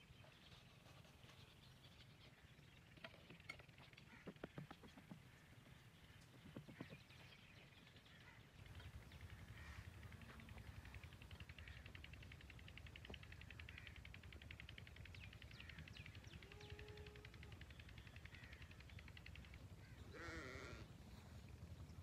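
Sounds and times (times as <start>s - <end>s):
wavering animal bleat: 16.3s - 17.5s, 20.1s - 21.0s.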